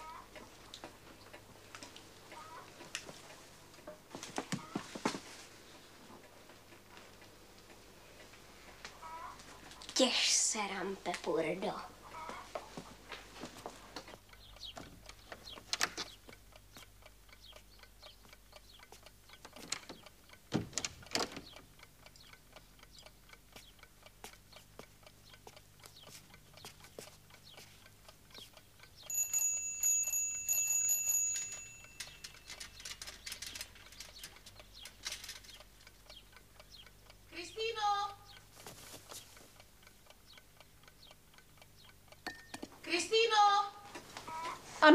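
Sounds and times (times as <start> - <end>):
mechanical clock ticking: 0.0 - 4.7, 13.8 - 44.5
alarm clock bell ringing: 29.1 - 32.9.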